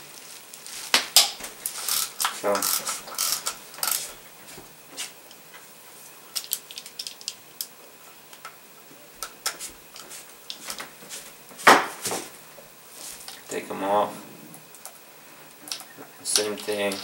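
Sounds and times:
hand ratchet clicking: 1.2 - 4.1.

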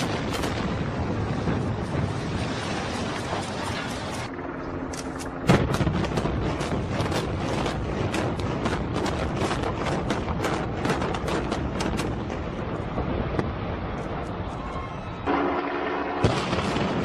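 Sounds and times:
loud explosive blast: 5.5 - 13.9, 16.2 - 17.0
sharp charge detonations: 16.2 - 17.0.

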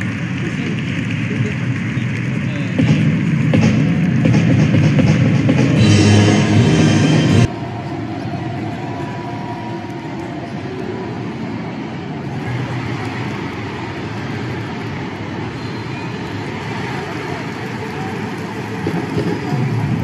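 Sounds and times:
crowd chanting: 2.8 - 19.3.

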